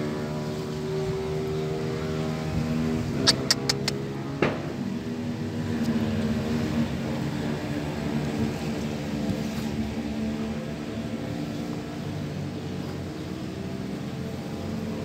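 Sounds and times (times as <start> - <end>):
engine droning: 0.0 - 15.0
sharp click: 3.3 - 4.0.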